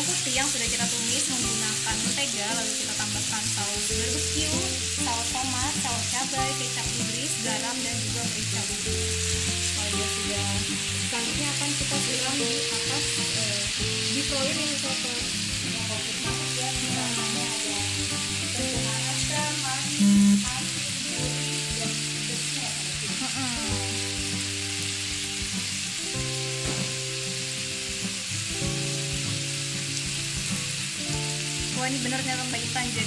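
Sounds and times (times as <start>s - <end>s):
beef sizzling in a hot pan: 0.0s - 33.0s
loud low tone: 20.0s - 20.6s.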